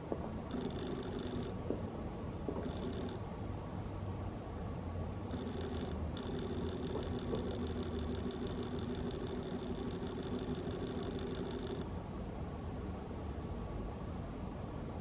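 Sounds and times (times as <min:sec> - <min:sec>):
low mechanical drone: 0:05.2 - 0:11.9
high thin whine: 0:05.3 - 0:11.9.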